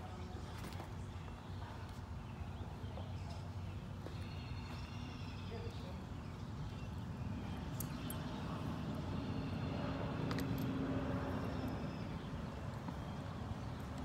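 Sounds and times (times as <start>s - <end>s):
low rumbling background noise: 0.0s - 14.0s
bridle bit metallic clinks: 7.5s - 8.4s, 10.2s - 10.8s.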